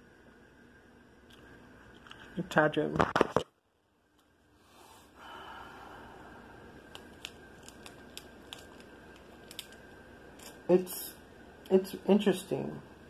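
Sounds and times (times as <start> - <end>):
plastic packet crinkling: 6.8 - 10.7.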